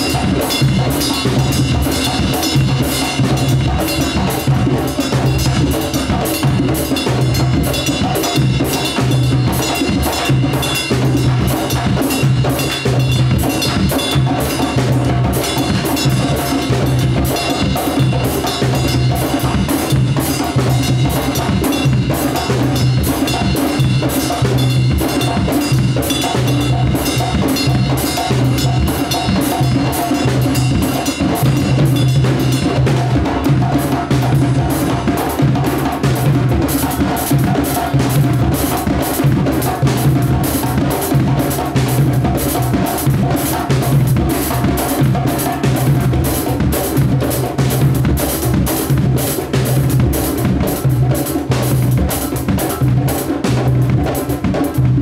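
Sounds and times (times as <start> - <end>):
barrel drums playing: 0.0 - 55.0
drum kit: 0.0 - 55.0.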